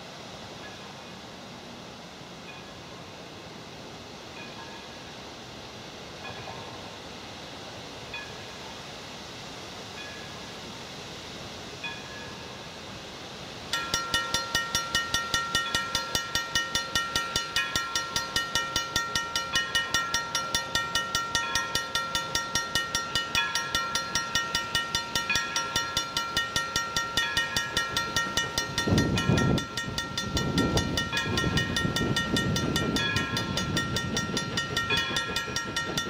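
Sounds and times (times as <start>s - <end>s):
steam locomotive working: 3.8s - 36.0s
crossing bell ringing: 13.7s - 36.0s.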